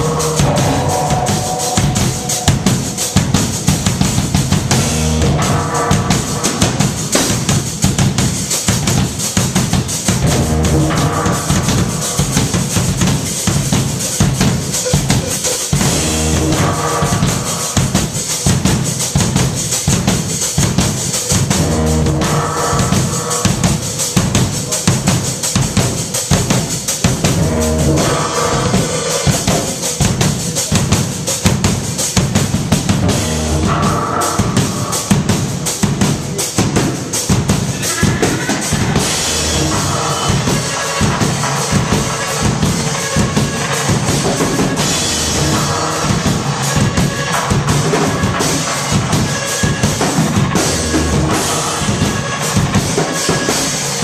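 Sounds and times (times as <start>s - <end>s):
chord swell: 0.0s - 7.2s
bass drum and snare beat: 0.0s - 54.0s
live band music: 0.0s - 54.0s.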